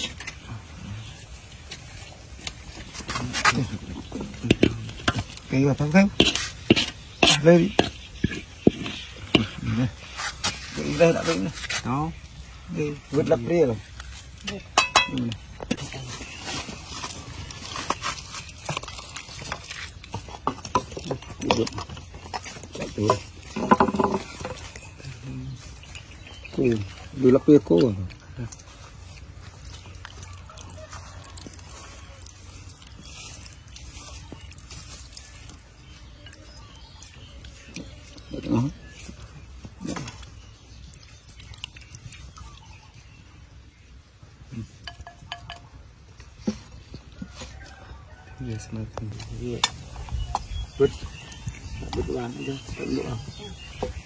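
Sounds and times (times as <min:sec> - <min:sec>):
metal spoon scraping in pan: 0:04.5 - 0:11.8
utensils clinking against metal pan: 0:14.6 - 0:15.4, 0:44.8 - 0:45.8.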